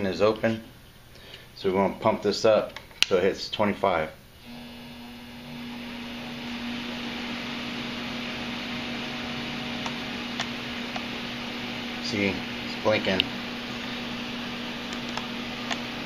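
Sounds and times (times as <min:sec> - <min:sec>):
fan humming: 0:03.2 - 0:16.0.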